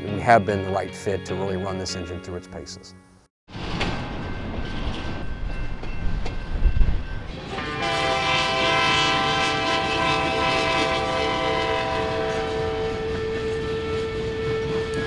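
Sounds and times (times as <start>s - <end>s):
low rumble of train: 3.5s - 15.0s
locomotive air horn chord: 7.4s - 15.0s.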